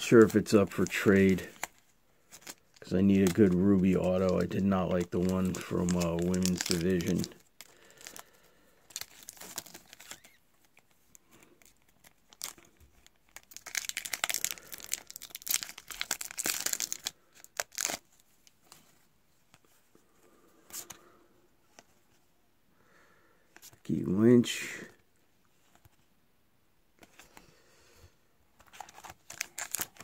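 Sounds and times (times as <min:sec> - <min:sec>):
plastic wrapper tearing and crinkling: 0:00.0 - 0:08.2, 0:08.9 - 0:10.8, 0:11.6 - 0:18.2, 0:28.6 - 0:30.0
cards rustling: 0:00.0 - 0:19.8, 0:28.6 - 0:30.0.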